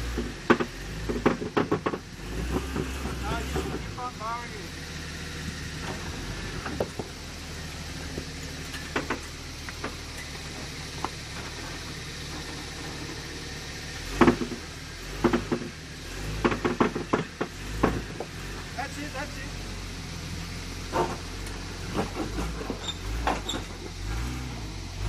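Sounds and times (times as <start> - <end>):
off-road vehicle engine running low: 0.0 - 25.0
knocks and clunks on rock: 0.2 - 3.2, 14.2 - 14.6, 15.2 - 15.7, 16.4 - 18.3.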